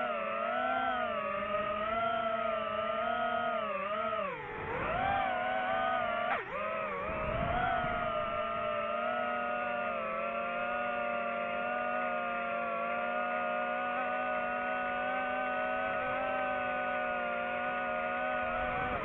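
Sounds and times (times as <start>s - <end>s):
drone propellers buzzing: 0.0s - 19.0s.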